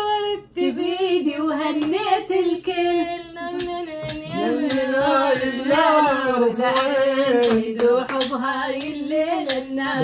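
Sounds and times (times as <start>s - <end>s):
woman singing into microphone: 0.0s - 10.0s
hand claps: 3.6s - 9.7s.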